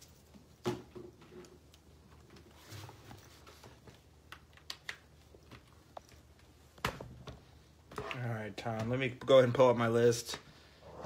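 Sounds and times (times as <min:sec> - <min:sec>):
faint clicks and taps: 0:03.2 - 0:09.4.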